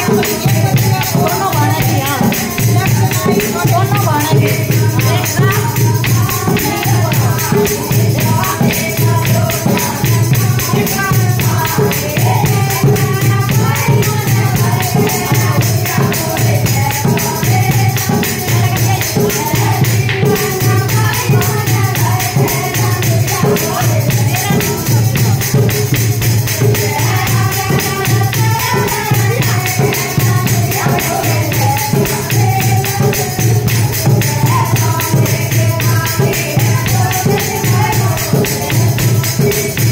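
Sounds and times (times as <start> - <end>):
hand drum rhythm: 0.0 - 39.9
women singing together: 0.0 - 39.9.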